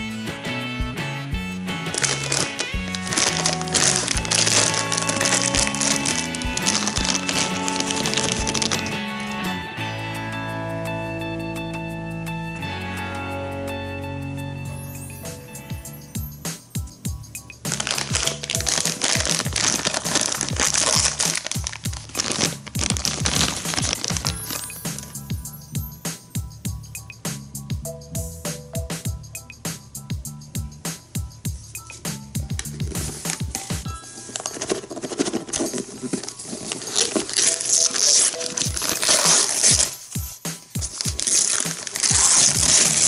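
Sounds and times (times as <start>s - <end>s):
music with thumping beat: 0.0s - 10.0s, 15.3s - 34.0s, 38.7s - 43.0s
packaging crinkling: 1.9s - 9.0s, 17.7s - 25.2s, 32.5s - 43.0s.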